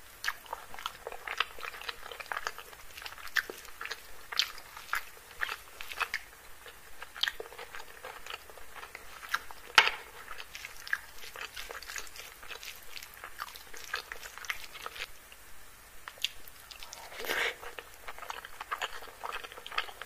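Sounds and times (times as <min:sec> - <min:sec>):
chewing and crunching food: 0:00.2 - 0:15.1, 0:16.0 - 0:20.0.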